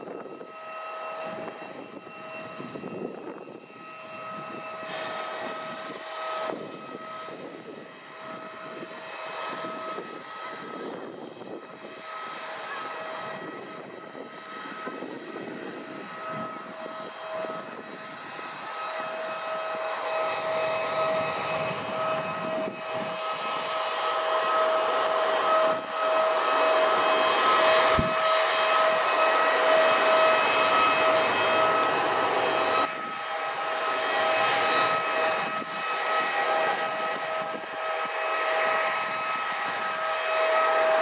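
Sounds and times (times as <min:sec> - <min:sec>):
jet turbine whine: 0:00.0 - 0:41.0.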